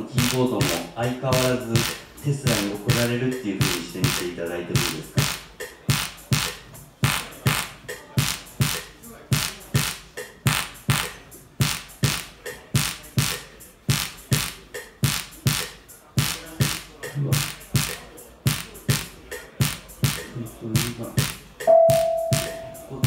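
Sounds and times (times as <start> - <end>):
drum machine beat: 0.0 - 23.0
low keyboard notes: 21.7 - 23.0.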